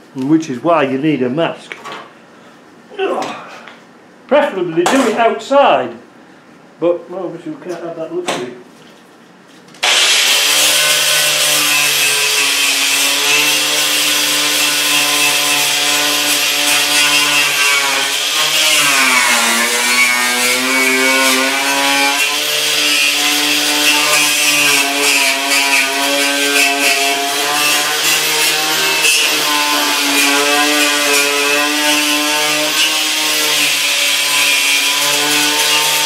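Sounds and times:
wire wheel grinder scrubbing rust: 9.8s - 36.0s.

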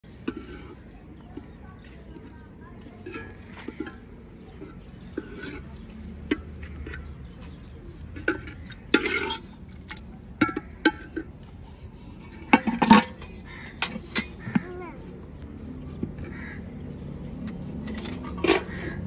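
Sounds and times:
metal spoon scraping a pot: 0.1s - 14.6s, 17.5s - 19.0s
metal plates knocking together: 8.1s - 11.3s, 12.4s - 14.7s.

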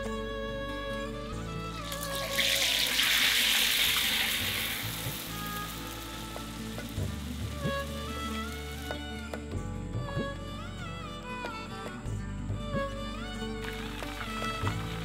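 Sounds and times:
background music: 0.0s - 15.0s
chicken sizzling in hot oil: 1.8s - 8.0s.

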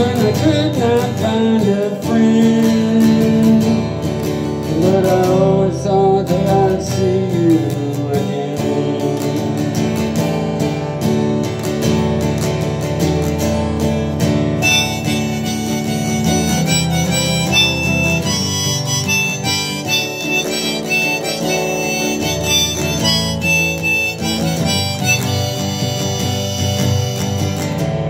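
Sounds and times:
strummed acoustic guitar: 0.0s - 28.0s
harmonica melody: 14.6s - 28.0s.

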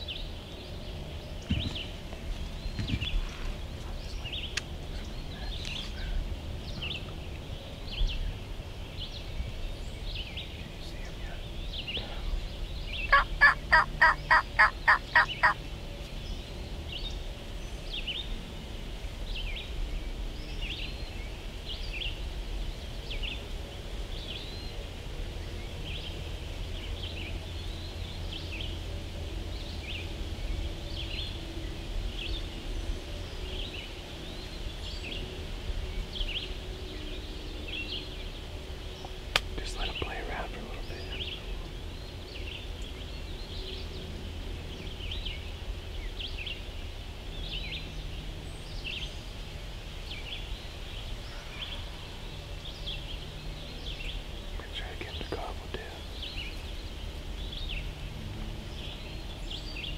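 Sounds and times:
turkey gobbling: 13.1s - 15.6s.

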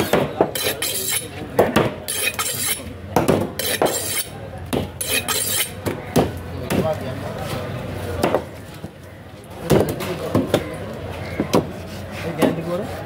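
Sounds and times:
knife knocking and clinking metal: 0.6s - 1.3s, 3.6s - 4.3s.

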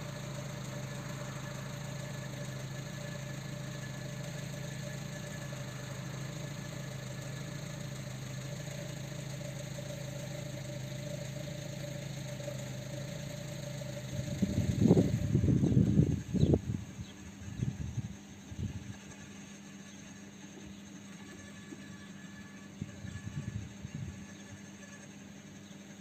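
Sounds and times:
loud irregular rumbling: 0.0s - 18.9s
engine idling: 0.0s - 26.0s.

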